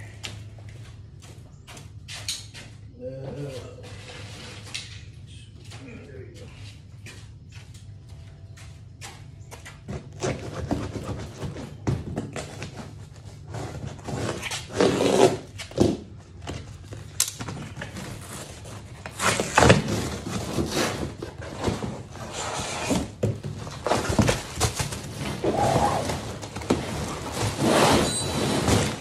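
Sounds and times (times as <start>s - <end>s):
cardboard scraping and rustling: 9.9s - 16.1s, 17.6s - 29.0s.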